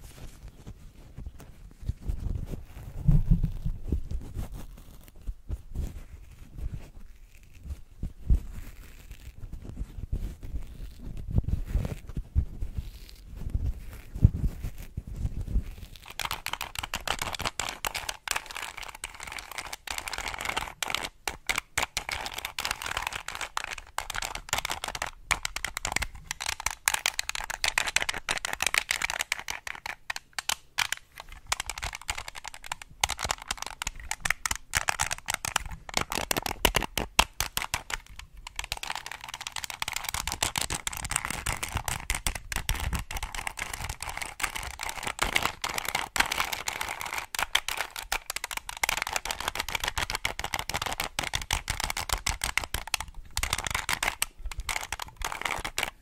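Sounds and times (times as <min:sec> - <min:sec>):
puzzle cube clicking: 0:16.1 - 0:56.0.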